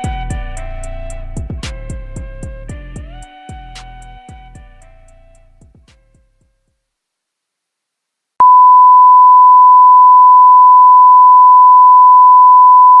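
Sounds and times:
steady test tone beep: 8.4 - 13.0.

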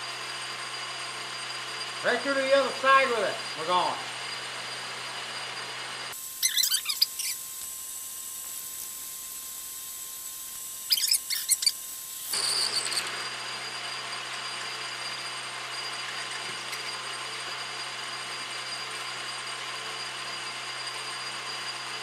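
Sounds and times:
metal lathe running: 0.0 - 6.2, 8.0 - 22.0
drill squealing: 0.0 - 7.5, 10.7 - 22.0.

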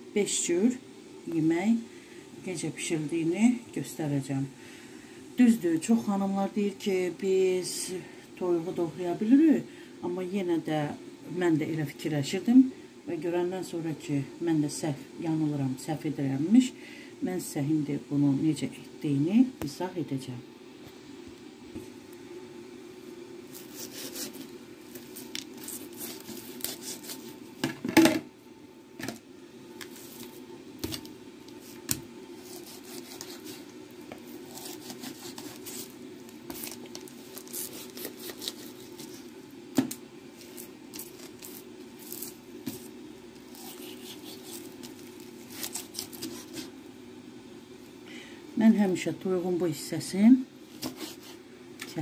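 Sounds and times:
steady low hum: 0.0 - 52.0
knife cutting raw chicken: 23.5 - 27.4, 32.4 - 35.9, 37.4 - 39.2, 43.5 - 46.7.

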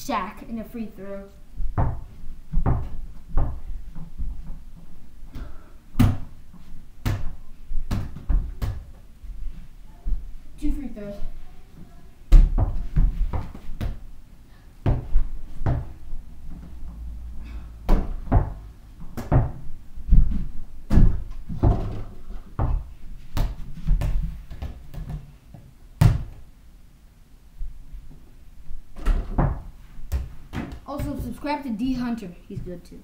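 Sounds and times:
ball knocking on backboard and door: 1.7 - 3.6, 12.3 - 14.0, 17.9 - 25.2, 26.0 - 26.4, 29.0 - 31.2.

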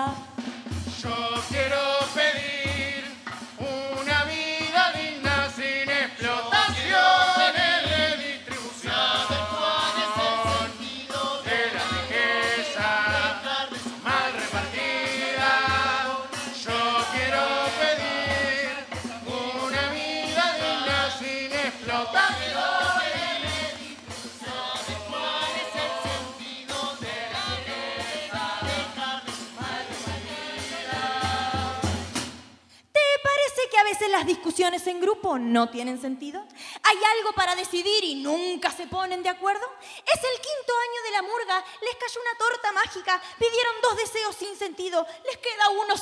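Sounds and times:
chorus singing in parts: 1.0 - 32.3.

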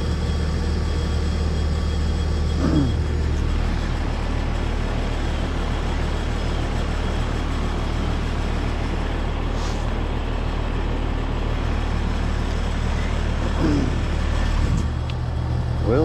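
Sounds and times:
low compressor hum: 0.0 - 16.0.

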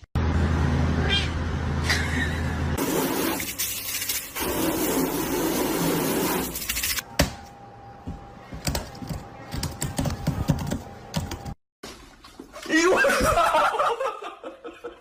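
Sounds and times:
water spraying onto a car: 2.8 - 6.6.

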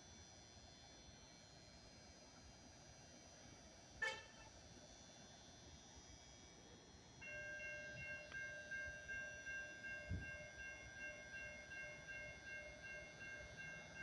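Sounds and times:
railroad crossing warning bell: 7.2 - 14.0.

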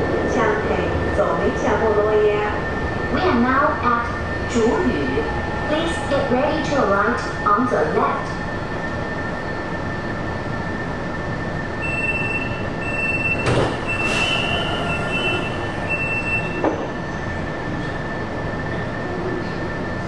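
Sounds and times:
train rumbling through tunnel: 0.0 - 20.0
wheel squeal: 11.9 - 16.6.

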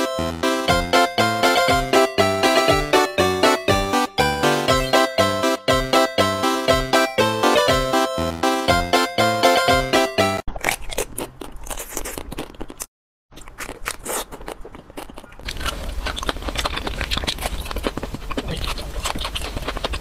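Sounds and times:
chocolate coating crunching: 13.4 - 20.0.

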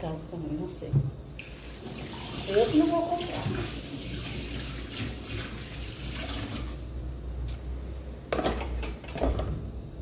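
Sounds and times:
tap water running into sink: 1.3 - 6.8.

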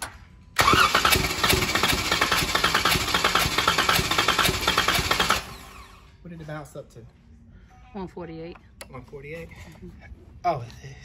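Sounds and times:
car engine starter cranking: 0.6 - 5.9.

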